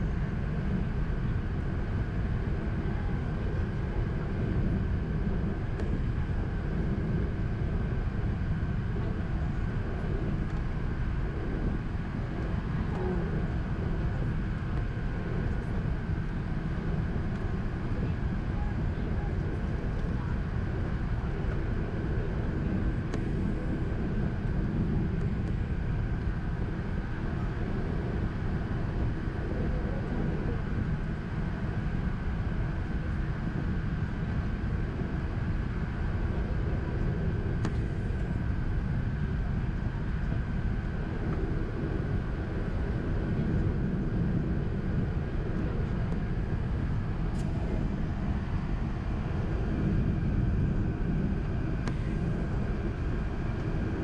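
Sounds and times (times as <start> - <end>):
faint steady hum: 0.0 - 54.0
aircraft cabin rush: 36.6 - 54.0.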